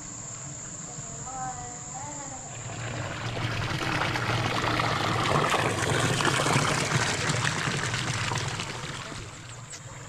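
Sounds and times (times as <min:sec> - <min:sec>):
water pouring into a pool: 0:02.5 - 0:09.7.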